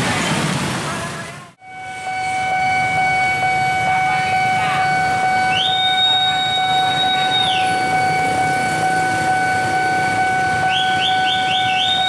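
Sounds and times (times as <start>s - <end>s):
level crossing alarm tone: 1.6s - 12.0s
higher sliding tone: 4.8s - 11.0s.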